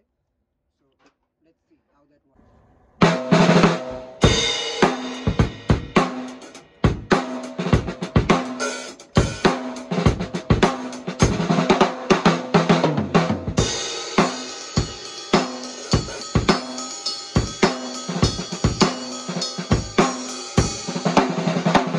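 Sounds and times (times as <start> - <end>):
cymbals: 3.0 - 12.8, 13.6 - 21.9
bass drum: 3.0 - 16.8, 17.4 - 21.9.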